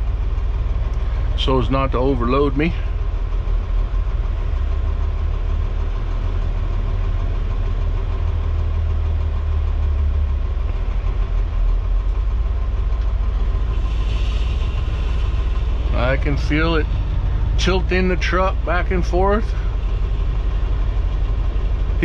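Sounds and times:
diesel engines idling: 0.0s - 22.0s
wheel loader working: 0.0s - 22.0s.

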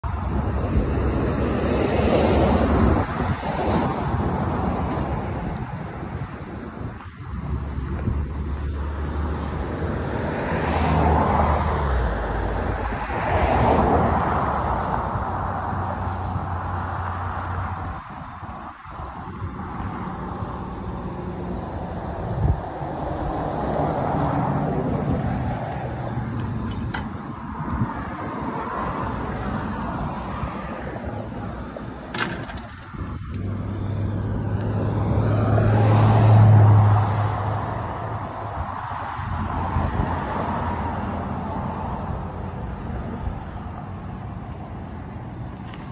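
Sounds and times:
vehicles passing: 0.0s - 45.9s
wind rumble on microphone: 0.0s - 45.9s.

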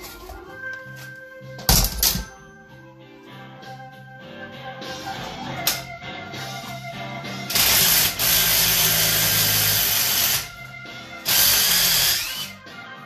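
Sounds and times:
cordless power tool running: 7.5s - 10.5s, 11.2s - 12.5s.

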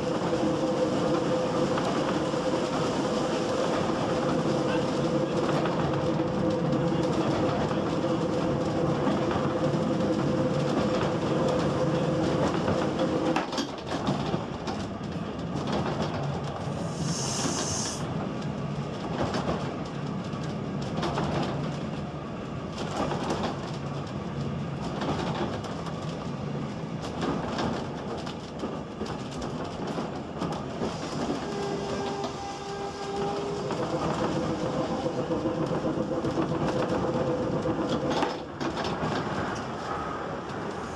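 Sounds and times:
railway rumbling and clattering: 0.0s - 40.9s
brief high hiss: 16.8s - 18.0s.

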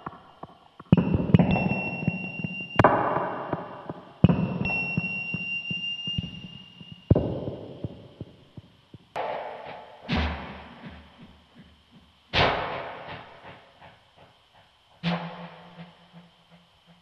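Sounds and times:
noisy electronic hits: 0.0s - 11.3s, 12.3s - 13.5s
thin high held tone: 4.4s - 7.2s.

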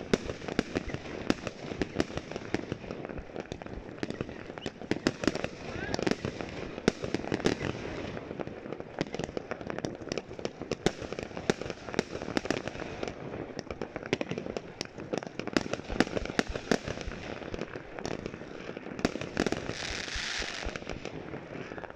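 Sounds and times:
fireworks bangs and crackling: 0.0s - 21.9s
firework hiss: 19.5s - 21.0s.

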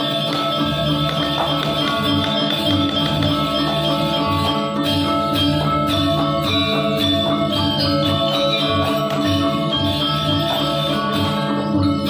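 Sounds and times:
gamelan playing: 0.0s - 12.0s.

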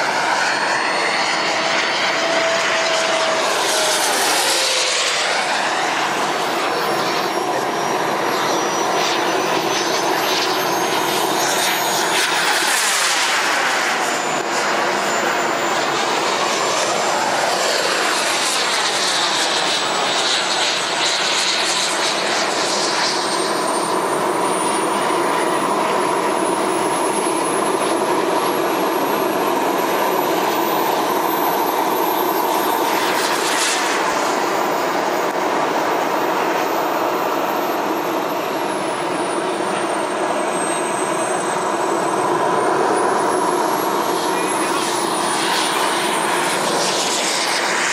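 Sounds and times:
model jet turbine whine: 0.0s - 47.9s.

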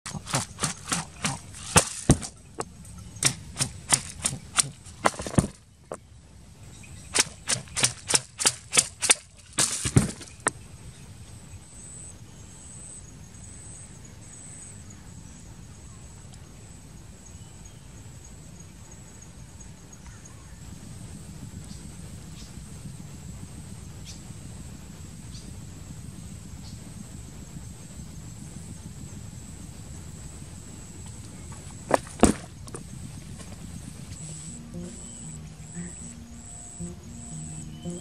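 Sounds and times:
sharp clicks: 0.1s - 5.6s, 7.1s - 10.6s
faint high-pitched background: 34.1s - 38.0s.

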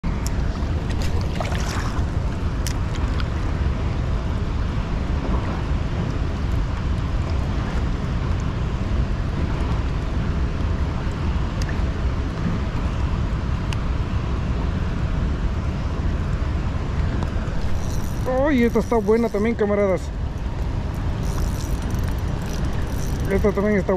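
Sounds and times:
wind buffeting microphone: 14.2s - 23.9s.

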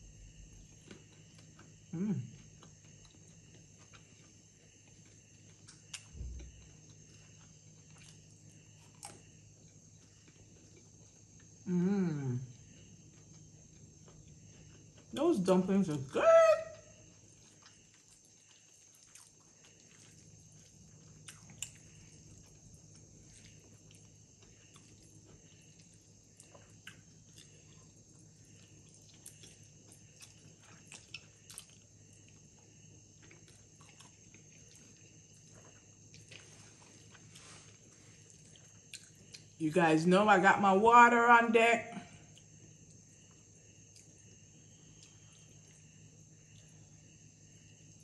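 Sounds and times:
low steady hum: 0.0s - 48.0s
person chewing noodles: 0.7s - 11.6s, 17.2s - 39.6s.

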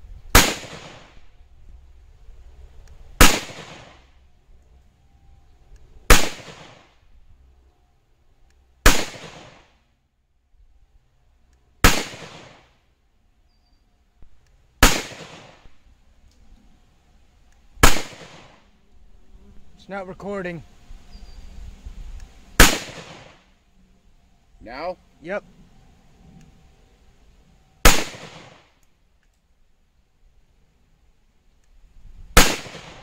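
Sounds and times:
pistol shots: 0.3s - 1.2s, 3.2s - 4.0s, 6.1s - 6.9s, 8.8s - 9.7s, 11.8s - 12.7s, 14.8s - 15.7s, 17.8s - 18.6s, 22.6s - 23.4s, 27.8s - 28.6s, 32.4s - 33.0s.

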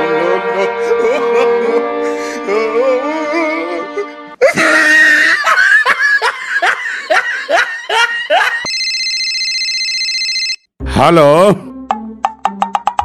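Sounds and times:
person laughing: 4.4s - 8.7s
mobile phone ringtone: 8.6s - 10.8s
instrumental background music: 10.8s - 13.0s.

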